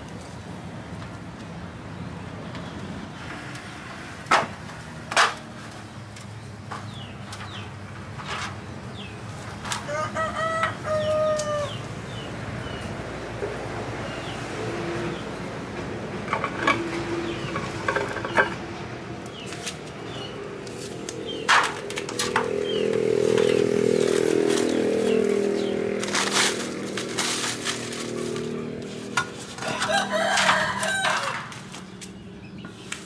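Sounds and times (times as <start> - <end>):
knocks and clatters of metal parts: 4.2 - 8.7, 16.2 - 18.8, 21.3 - 24.9, 26.0 - 32.1
rooster crowing: 9.8 - 11.9, 29.6 - 31.6.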